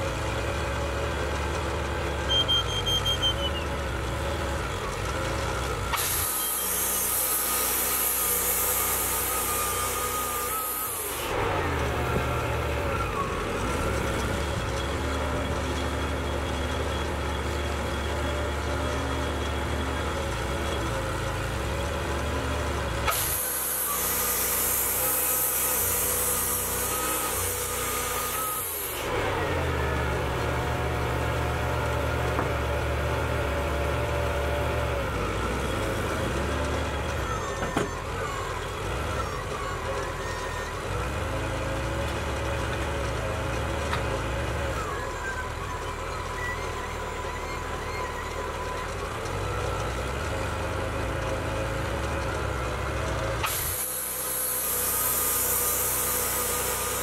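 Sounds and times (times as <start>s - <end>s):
sawmill engine running: 0.0s - 57.0s
short falling whines: 5.8s - 20.1s, 23.0s - 33.0s.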